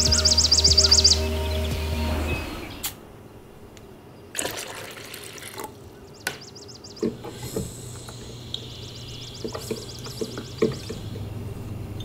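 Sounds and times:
liquid gurgling and splashing: 4.3 - 5.8
water pouring: 4.3 - 5.8.

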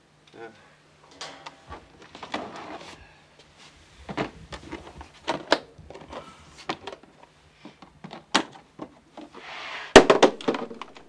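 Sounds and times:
case dragged over steel shelf: 9.4 - 10.0.

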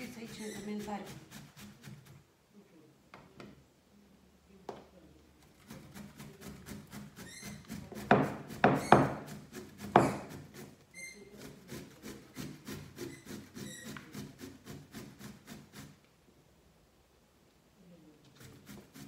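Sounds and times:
zucchini rasping on metal grater: 0.0 - 2.2, 5.5 - 16.0, 18.4 - 19.0.

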